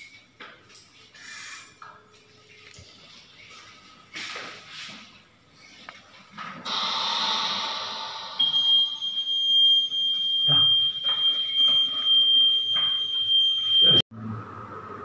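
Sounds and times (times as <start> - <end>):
hiss: 6.7 - 9.0
high-pitched alarm tone: 6.7 - 14.0.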